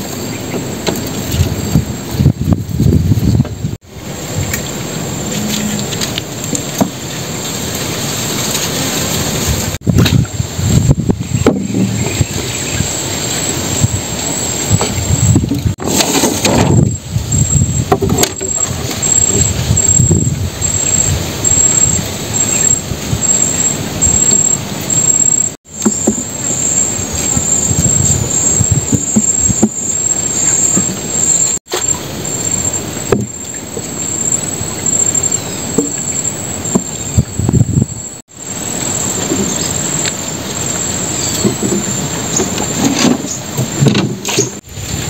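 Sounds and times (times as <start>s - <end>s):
low rumbling noise: 0.0s - 45.0s
insects trilling: 16.3s - 44.6s.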